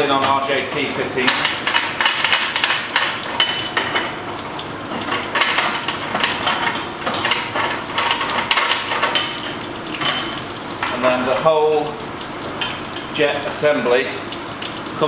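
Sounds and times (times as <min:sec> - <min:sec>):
metal fittings clinking and rattling: 0:01.3 - 0:04.2, 0:04.9 - 0:11.9.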